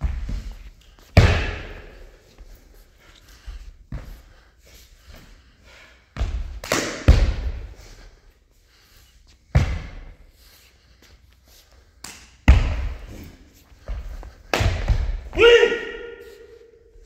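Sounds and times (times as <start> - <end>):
strikes against body and uniform: 1.2 - 2.0.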